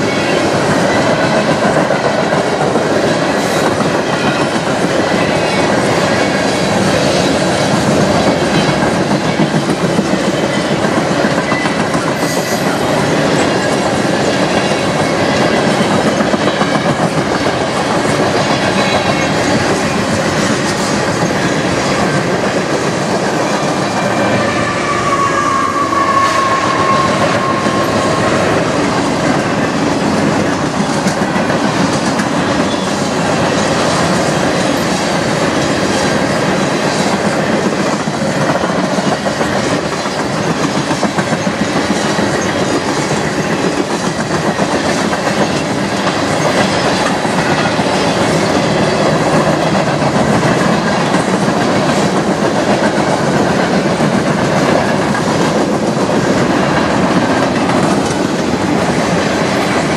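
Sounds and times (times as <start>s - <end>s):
high wheel squeal: 23.4s - 29.0s.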